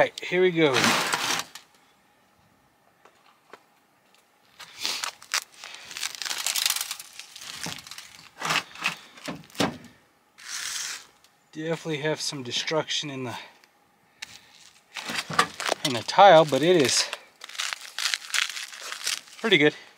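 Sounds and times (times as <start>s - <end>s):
tape and paper crinkling and tearing: 0.7s - 1.7s, 4.5s - 9.6s, 10.4s - 11.3s, 14.2s - 19.8s
sharp cracks and snaps: 3.5s - 9.4s, 13.6s - 19.5s.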